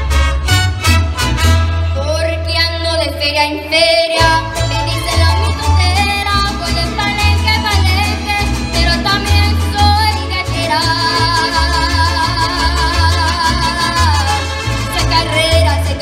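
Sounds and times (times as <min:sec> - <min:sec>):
mariachi band playing: 0:00.0 - 0:16.0
person singing: 0:03.6 - 0:14.4.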